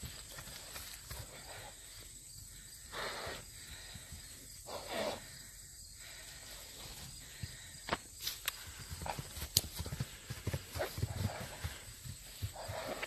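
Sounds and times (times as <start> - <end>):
insects trilling: 0.0 - 13.0
breathy hissing bursts: 2.8 - 6.3.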